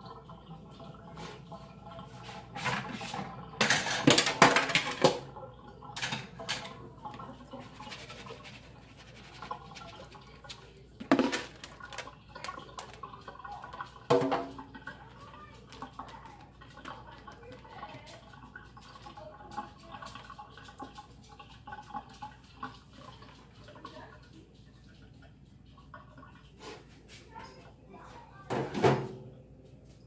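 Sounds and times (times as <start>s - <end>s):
running water: 0.0s - 30.0s
strainer knocking against plate: 11.0s - 11.6s.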